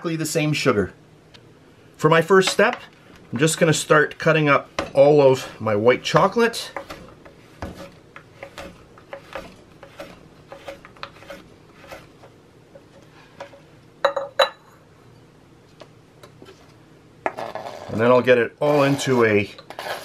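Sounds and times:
knife chopping on cutting board: 6.1 - 12.1.

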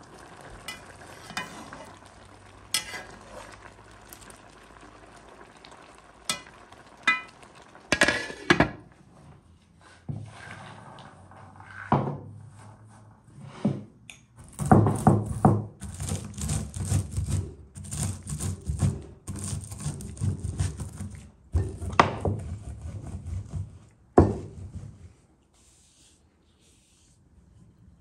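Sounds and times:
walnuts crunching under rolling pin: 14.4 - 21.1.

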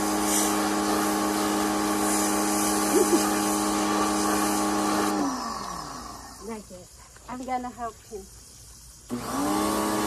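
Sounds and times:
pressure washer motor humming: 0.0 - 6.6, 9.1 - 10.0
water spray hissing: 0.0 - 10.0.

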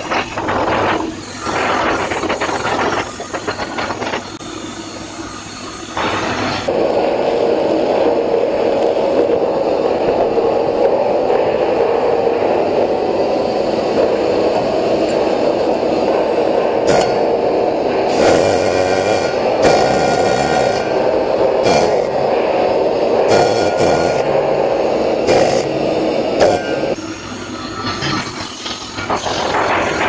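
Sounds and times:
welding arc crackling and hissing: 0.0 - 30.0.

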